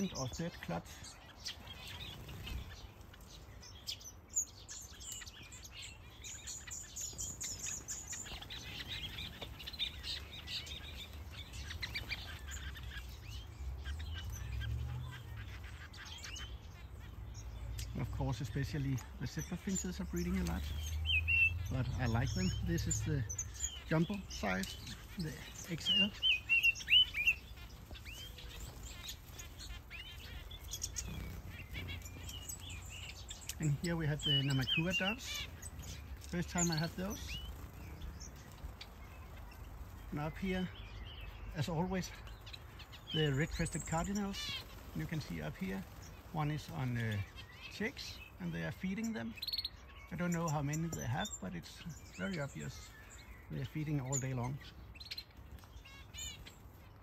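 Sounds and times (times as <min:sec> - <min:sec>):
finches and canaries chirping: 0:00.0 - 0:57.0.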